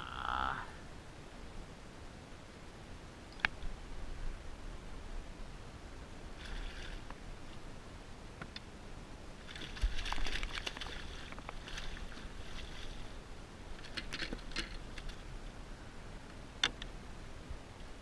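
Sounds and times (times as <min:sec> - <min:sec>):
water splashing: 0:06.4 - 0:07.1, 0:09.4 - 0:13.2.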